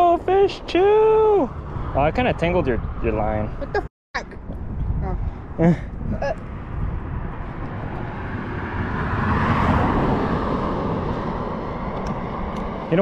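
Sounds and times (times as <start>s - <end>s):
car passing: 0.0s - 3.8s, 5.2s - 13.0s.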